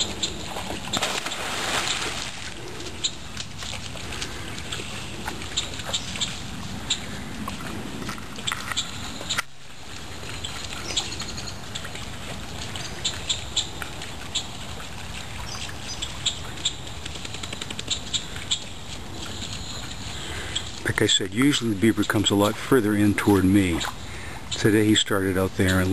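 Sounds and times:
birds chirping: 0.0s - 3.4s, 4.0s - 7.6s, 10.2s - 12.0s, 15.4s - 25.9s
low outdoor background: 0.0s - 25.9s.

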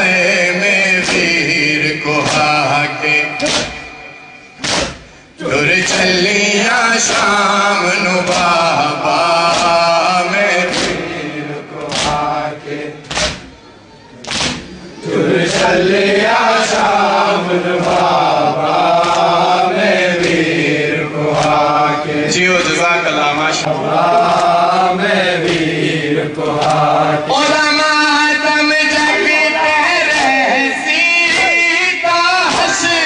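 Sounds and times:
person chanting a lament: 0.0s - 33.0s
sharp slaps: 0.9s - 5.2s, 7.0s - 7.6s, 8.2s - 12.4s, 13.0s - 13.6s, 14.2s - 14.8s, 15.4s - 15.9s, 18.8s - 20.6s, 21.3s - 21.7s, 25.4s - 26.9s, 30.0s - 33.0s.

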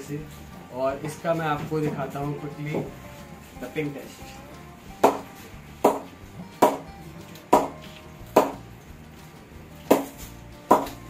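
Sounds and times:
cricket ball knocking on bat: 5.0s - 6.9s, 7.5s - 7.8s, 8.4s - 8.6s, 10.7s - 11.0s.

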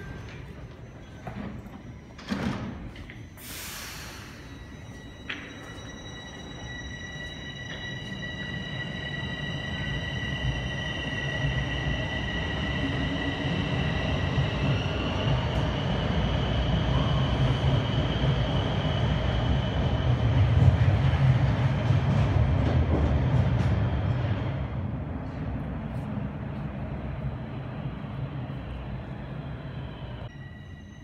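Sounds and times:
wheels rumbling on rail: 7.3s - 30.4s.

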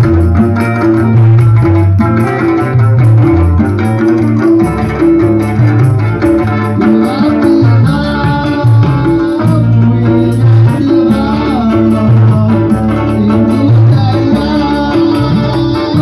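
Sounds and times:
amplified band music: 0.0s - 16.0s
bass line: 0.0s - 16.0s
high percussion ticking: 0.0s - 16.0s
plucked strings: 0.0s - 16.0s
man singing into microphone: 6.5s - 16.0s.

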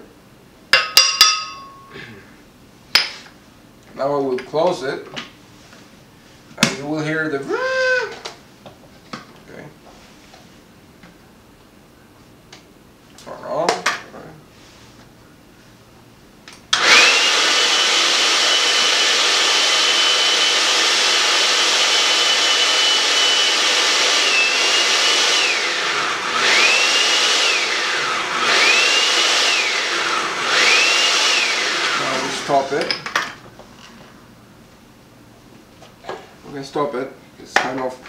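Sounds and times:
blender motor whining: 7.5s - 8.2s, 16.7s - 32.7s.

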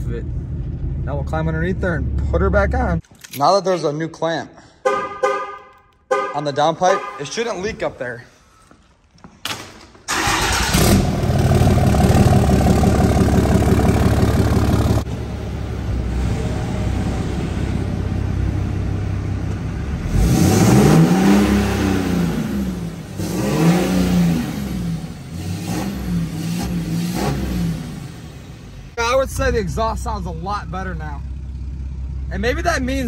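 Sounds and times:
truck engine running and revving: 10.5s - 28.9s.

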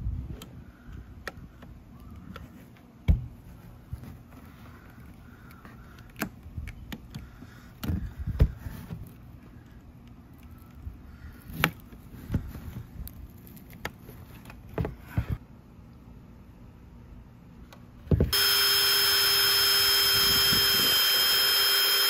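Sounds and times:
drill bit clicking on plastic: 18.3s - 22.0s.

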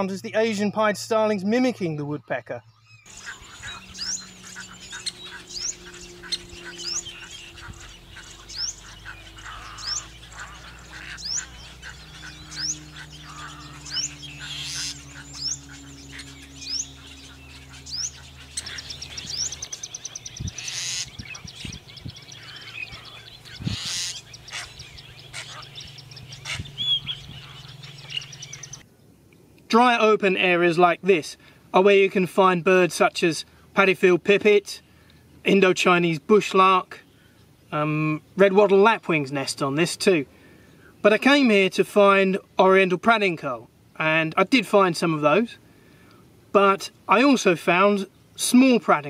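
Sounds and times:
starlings beeping calls: 0.0s - 28.8s
harsh bird calls: 0.0s - 28.9s.

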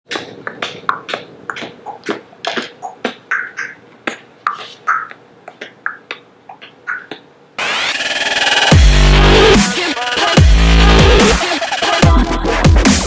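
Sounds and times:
boy beatboxing: 0.1s - 8.7s.

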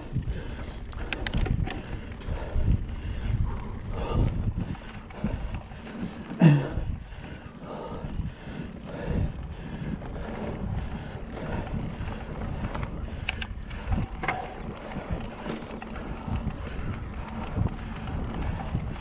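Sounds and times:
mountain bike rumbling and rattling: 0.0s - 19.0s
wind buffeting the microphone: 0.0s - 19.0s.

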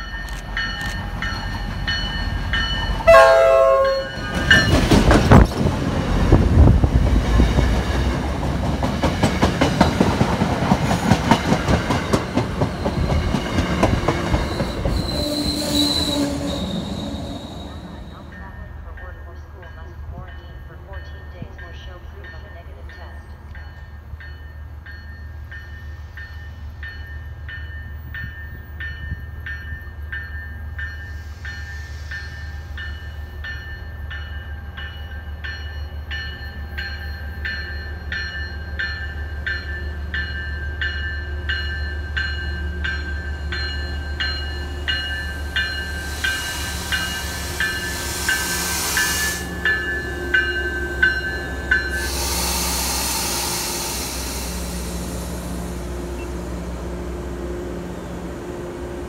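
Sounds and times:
train bell ringing: 0.0s - 5.2s, 16.6s - 55.4s
low train rumble: 0.0s - 59.0s
rushing wheel and air noise: 51.8s - 56.5s.

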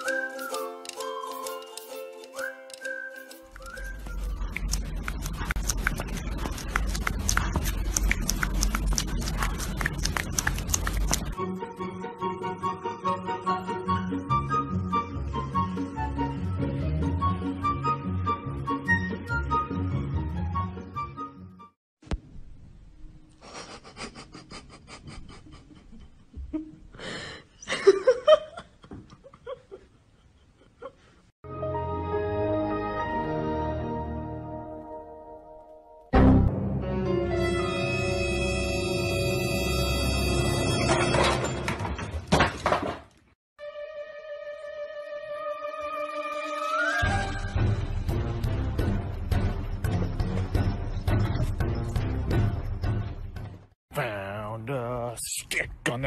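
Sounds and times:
person laughing breathily: 23.4s - 31.3s.

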